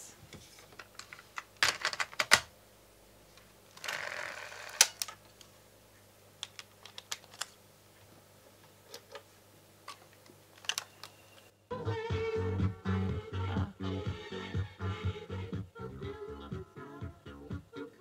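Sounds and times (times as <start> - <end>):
plastic cassette clicks: 6.4 - 7.6, 10.6 - 11.2.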